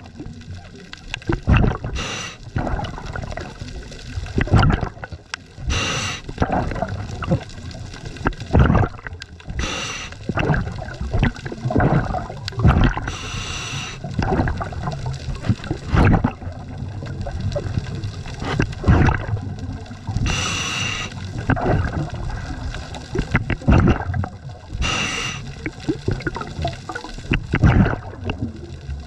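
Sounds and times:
gurgling exhaled bubbles: 0.0s - 29.0s
regulator hissing inhales: 1.9s - 2.4s, 5.7s - 6.3s, 9.6s - 10.2s, 13.0s - 14.0s, 20.2s - 21.2s, 24.8s - 25.6s.

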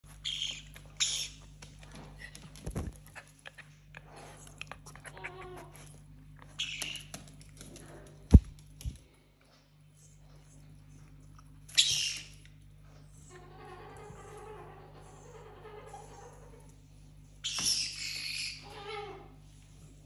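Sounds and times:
parrot squawking: 17.5s - 19.2s.

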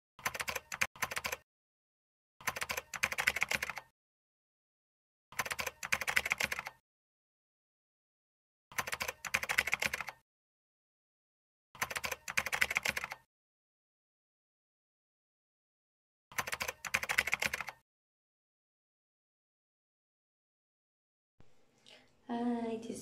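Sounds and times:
keyboard typing clicks: 0.2s - 1.4s, 2.4s - 3.9s, 5.4s - 6.8s, 8.7s - 10.2s, 11.8s - 13.3s, 16.3s - 17.8s.

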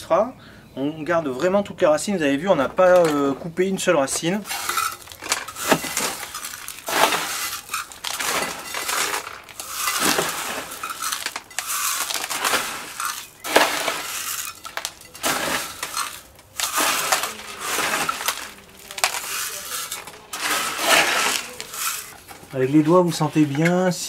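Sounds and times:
metal scoop scooping grit: 4.0s - 23.8s
grit poured into plastic pot: 4.4s - 23.4s.

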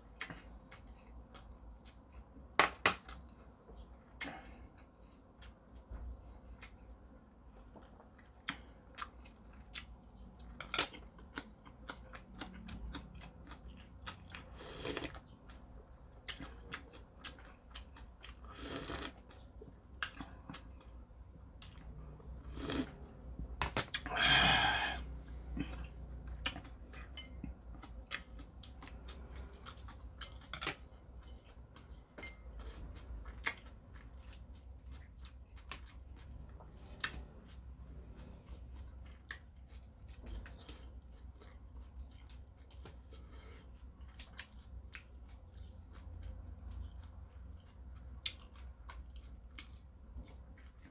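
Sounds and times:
chewing and chopsticks clicking: 7.6s - 22.2s, 25.7s - 43.1s, 43.8s - 50.9s.

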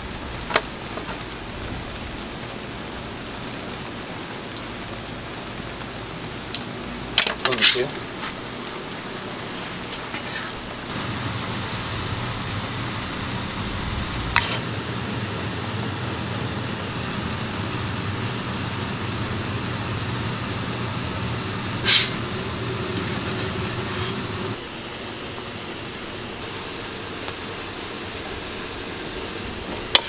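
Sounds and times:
background rumble with low hum: 8.0s - 30.0s.

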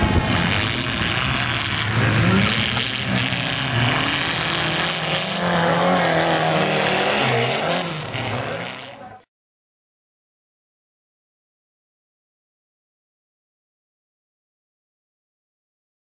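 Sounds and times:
race car engines revving: 0.0s - 9.3s.

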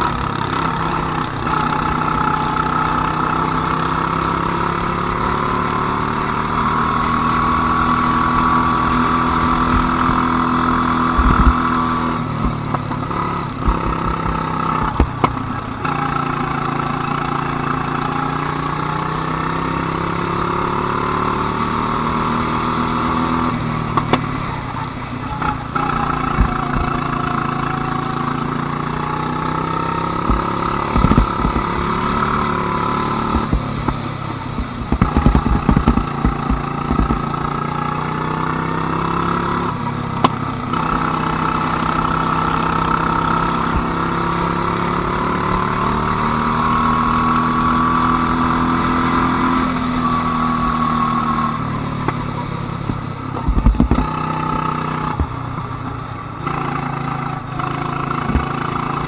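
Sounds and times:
go-kart engine revving: 0.0s - 59.0s
knocks and rattles: 34.8s - 37.2s.

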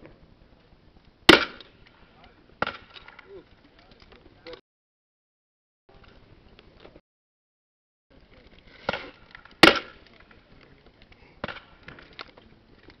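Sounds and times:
grenade launcher firing: 1.3s - 1.7s, 8.9s - 10.0s.

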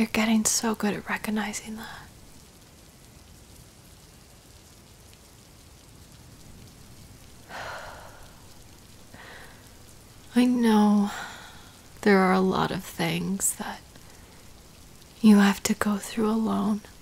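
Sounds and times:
steady rain falling: 0.0s - 17.0s
woman breathing: 7.4s - 9.8s, 11.1s - 11.9s
woman sighing breathily: 7.5s - 8.5s.

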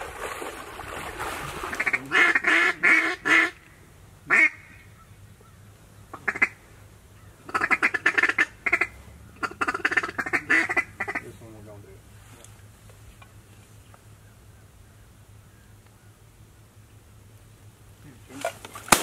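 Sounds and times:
duck call quacks: 1.7s - 3.6s, 4.3s - 4.9s, 6.1s - 6.6s, 7.5s - 11.3s.

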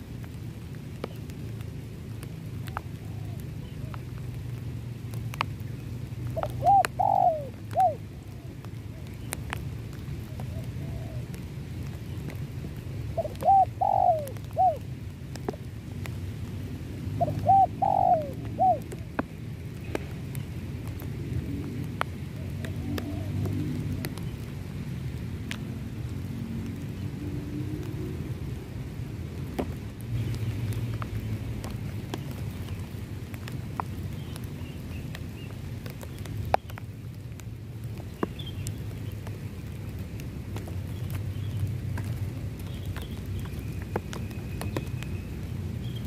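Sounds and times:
dove cooing: 2.7s - 4.0s, 6.4s - 9.1s, 10.3s - 11.3s, 13.1s - 14.8s, 17.2s - 19.0s, 22.4s - 24.2s.

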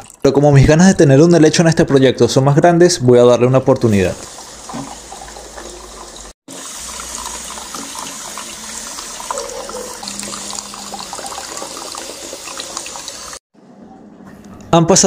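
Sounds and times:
water trickling and splashing: 4.2s - 13.4s.

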